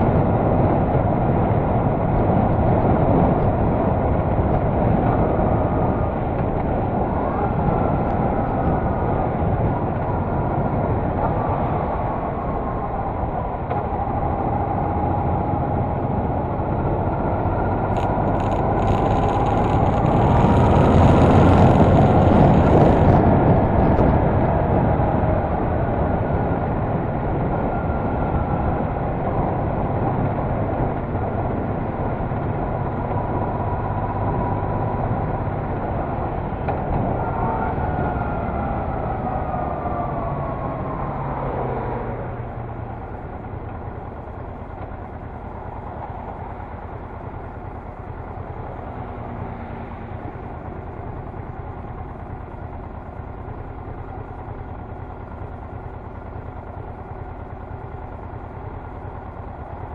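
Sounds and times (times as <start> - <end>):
motorcycle engine running: 0.0 - 24.6, 42.4 - 59.9
road noise: 0.0 - 59.9.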